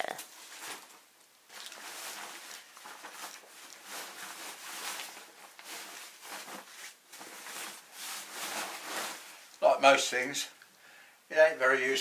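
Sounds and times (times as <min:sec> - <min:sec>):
fabric rustling and rubbing: 0:00.2 - 0:10.3.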